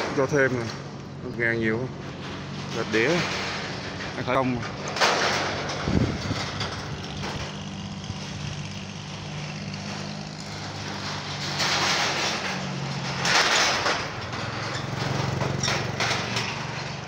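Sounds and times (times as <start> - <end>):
motorbike engine running: 5.4 - 13.4.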